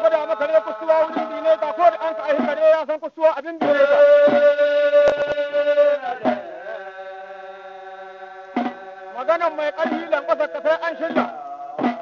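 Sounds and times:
person singing: 3.4 - 12.0.

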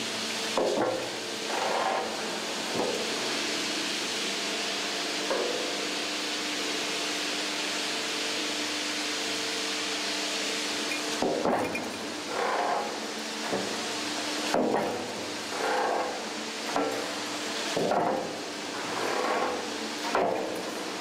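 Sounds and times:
machine hum: 9.0 - 21.0.

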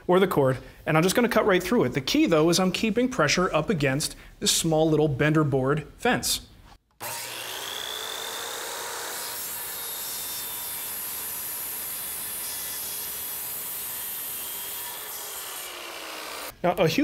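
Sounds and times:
circular saw cutting panel: 7.0 - 16.6.

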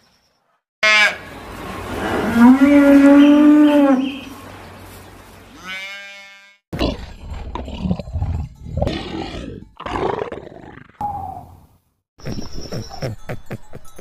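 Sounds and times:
calf mooing: 5.5 - 6.6.

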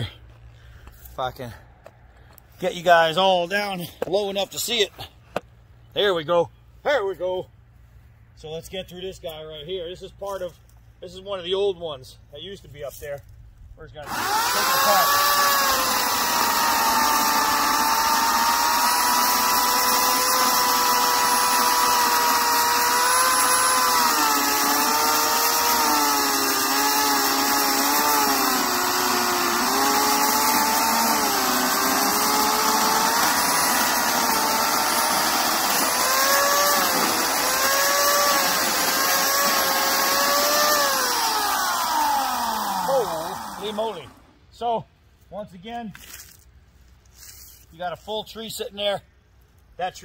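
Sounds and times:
electric chainsaw cutting log: 14.0 - 44.4.

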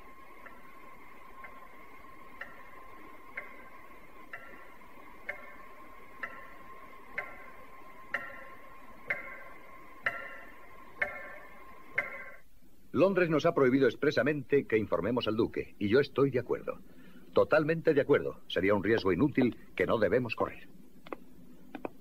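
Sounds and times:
clock timer ticking: 0.0 - 12.4.

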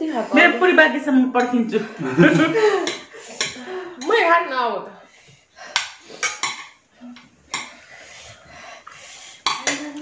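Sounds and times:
spoons clinking on ceramic plates: 1.4 - 4.2, 5.7 - 7.9, 9.3 - 10.0.

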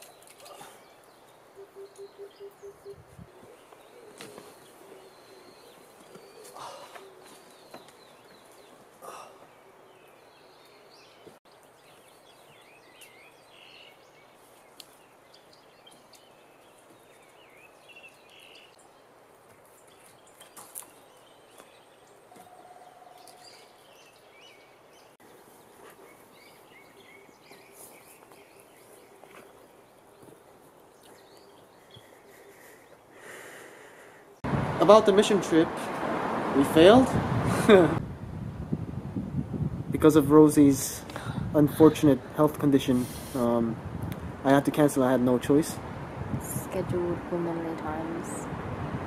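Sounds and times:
bird chirps and calls: 0.0 - 18.8, 26.0 - 29.6.

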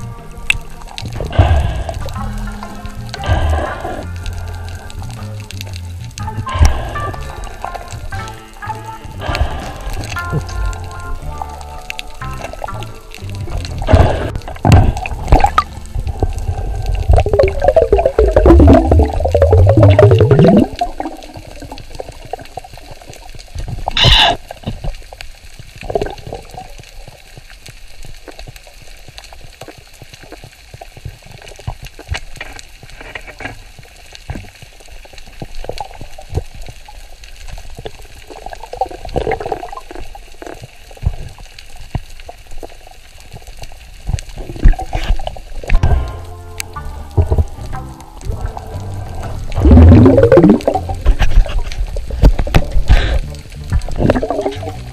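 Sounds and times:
water rushing and bubbling: 0.0 - 54.9
underwater hiss: 0.6 - 5.4, 6.5 - 8.2, 9.1 - 10.8, 13.8 - 24.7.

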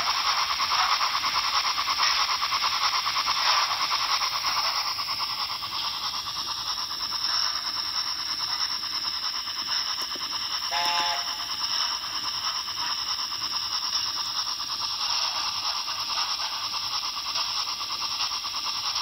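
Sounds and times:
model train motor whirring: 0.0 - 19.0
short tone: 10.7 - 11.5.

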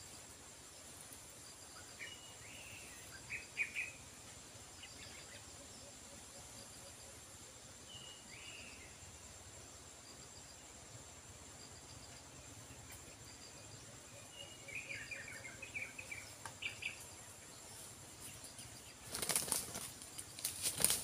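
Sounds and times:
bird wings flapping: 19.0 - 21.0.

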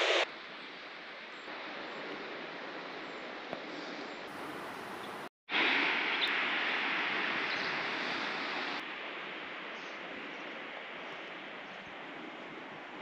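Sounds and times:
outdoor rushing hiss: 0.0 - 0.3.

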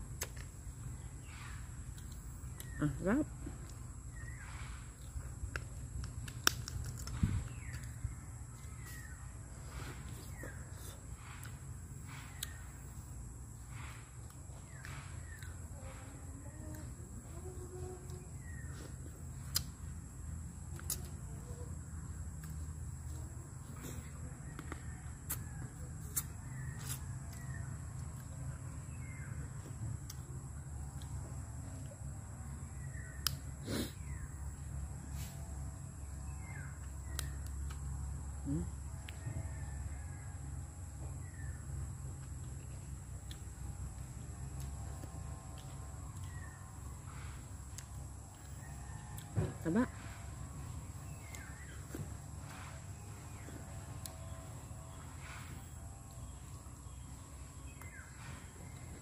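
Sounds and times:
food being bitten and chewed: 0.1 - 13.2, 18.0 - 31.9, 35.2 - 39.9, 41.2 - 59.0
handling and eating sounds: 5.0 - 11.4
food cracking apart: 6.2 - 7.2.

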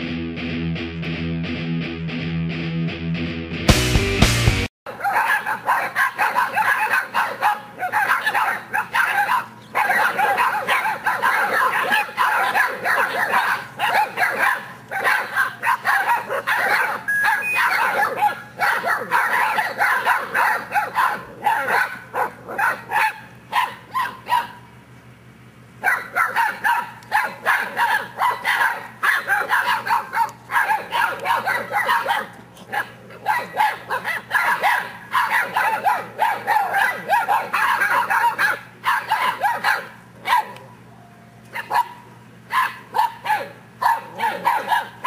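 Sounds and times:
puppies barking and yipping: 4.9 - 24.8, 25.8 - 45.0.

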